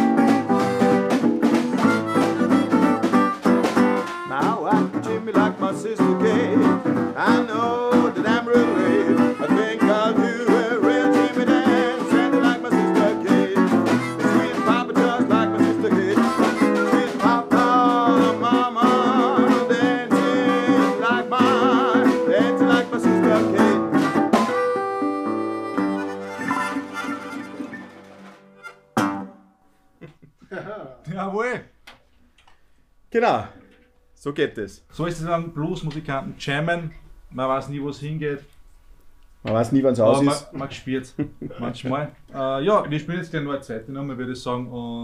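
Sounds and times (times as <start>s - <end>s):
harmonica wailing: 0.0s - 29.1s
acoustic guitar strumming: 0.0s - 29.7s.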